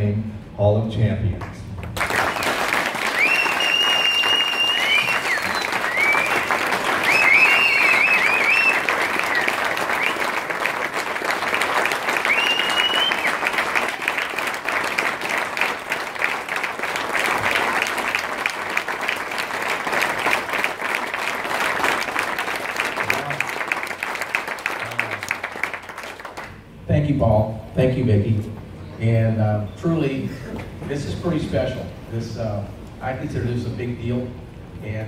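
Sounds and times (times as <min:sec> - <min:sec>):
audience applauding: 0:01.8 - 0:26.6
high wavering whistles: 0:02.4 - 0:10.3, 0:12.2 - 0:13.4.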